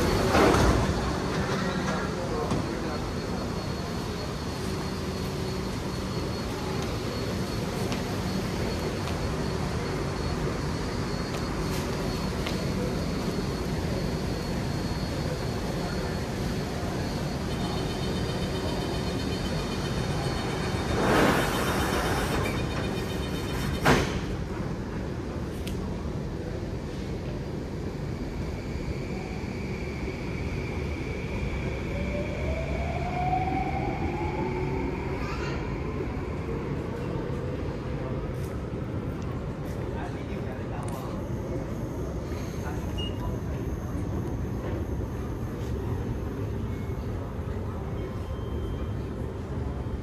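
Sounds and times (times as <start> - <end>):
faint high whine: 0.0 - 25.2, 26.0 - 50.0
train wheels rumbling on rail: 0.0 - 48.3
steady high tone: 2.2 - 23.5.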